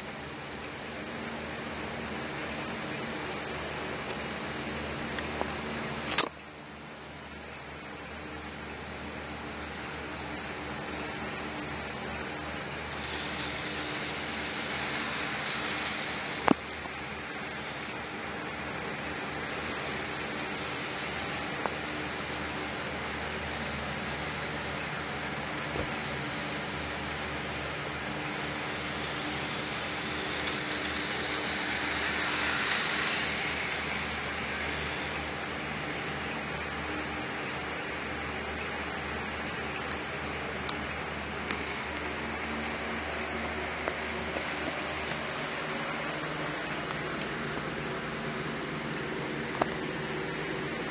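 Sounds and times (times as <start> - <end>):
faint hum: 0.0 - 50.9
model tram hiss and whir: 0.0 - 50.9
sharp click: 6.0 - 6.4.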